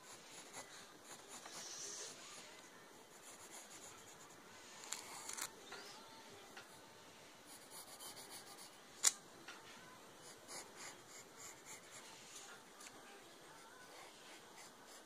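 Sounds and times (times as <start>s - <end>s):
pencil scratching on paper: 0.0s - 2.2s, 3.0s - 5.5s, 7.5s - 8.8s, 10.2s - 12.2s, 13.8s - 15.0s.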